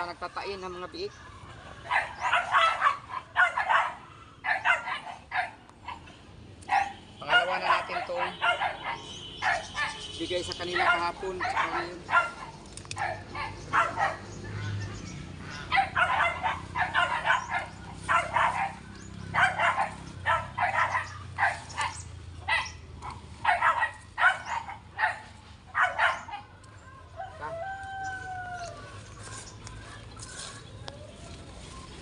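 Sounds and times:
dog barking: 0:01.8 - 0:06.1, 0:06.7 - 0:14.4, 0:15.5 - 0:26.5.

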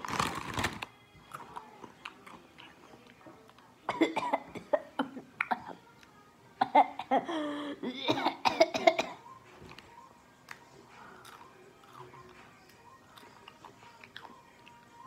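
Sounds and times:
boy coughing: 0:03.9 - 0:05.8, 0:06.6 - 0:09.2.

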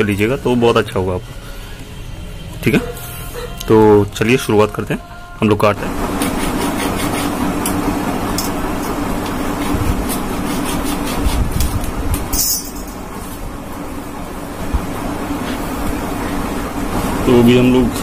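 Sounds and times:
hacksaw cutting plastic pipe: 0:06.2 - 0:07.8, 0:09.6 - 0:11.7.

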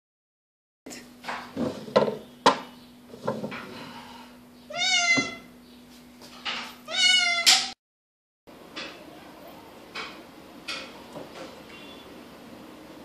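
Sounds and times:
cat meowing: 0:04.7 - 0:05.5, 0:06.9 - 0:07.7.

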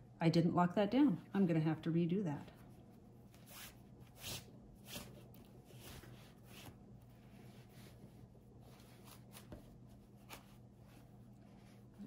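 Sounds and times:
fabric rustling and brushing: 0:02.5 - 0:12.0.

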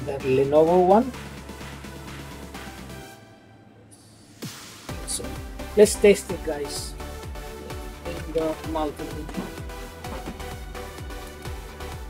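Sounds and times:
electronic music: 0:00.0 - 0:03.0, 0:04.1 - 0:12.0.

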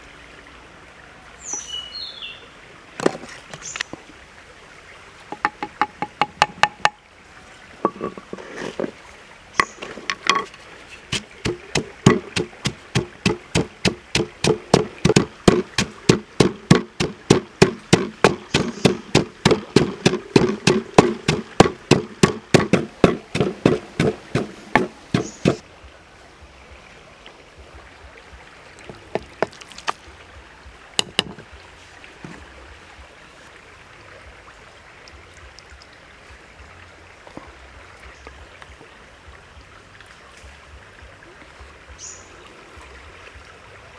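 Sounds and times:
pestle pounding in wooden mortar: 0:05.3 - 0:07.0, 0:11.1 - 0:25.6.

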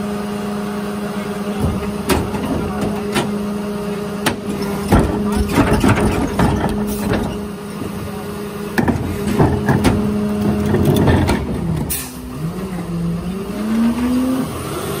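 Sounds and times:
truck diesel engine: 0:00.0 - 0:15.0
trash clattering into hopper: 0:04.2 - 0:07.5, 0:08.7 - 0:12.2.

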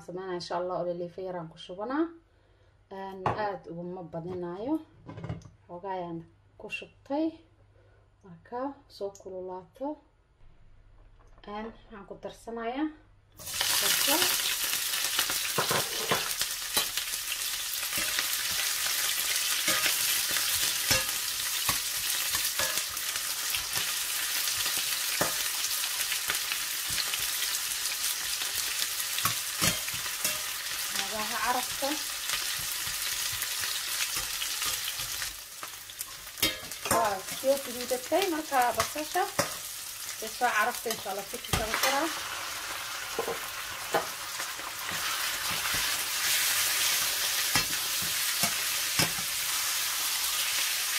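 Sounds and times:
onions sizzling in hot oil: 0:13.4 - 0:50.9
metal turner scraping pan: 0:17.8 - 0:25.7, 0:28.1 - 0:39.8.

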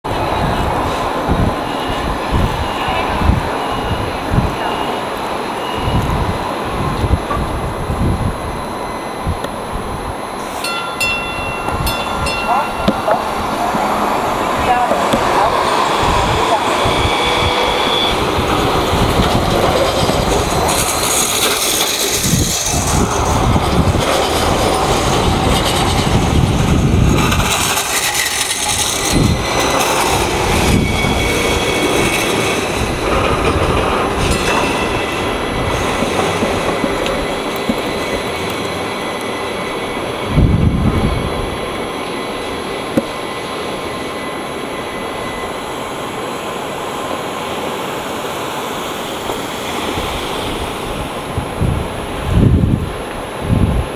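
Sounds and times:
tram rolling rumble: 0:00.0 - 0:53.9
high wheel squeals: 0:01.6 - 0:06.4, 0:10.1 - 0:26.4, 0:27.0 - 0:42.6.

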